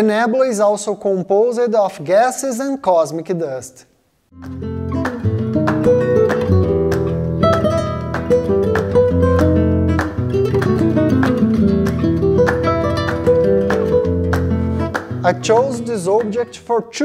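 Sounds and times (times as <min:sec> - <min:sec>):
steady bass line: 0:04.3 - 0:16.5
acoustic guitar strumming: 0:04.3 - 0:16.9.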